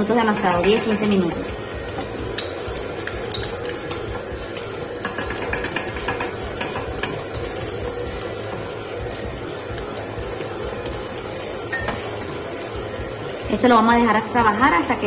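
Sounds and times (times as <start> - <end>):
stand mixer kneading dough: 0.0 - 15.0.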